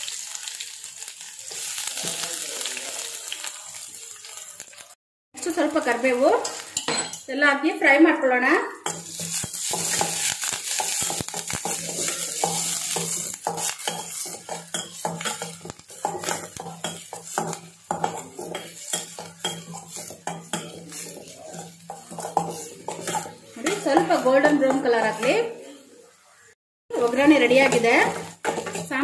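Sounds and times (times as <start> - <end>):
frying in hot oil sizzling: 0.0 - 29.0
metal spatula scraping a pan: 8.8 - 29.0.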